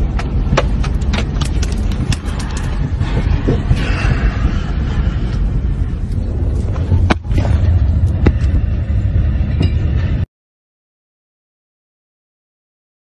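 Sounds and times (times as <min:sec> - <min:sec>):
car cabin rumble: 0:00.0 - 0:09.8.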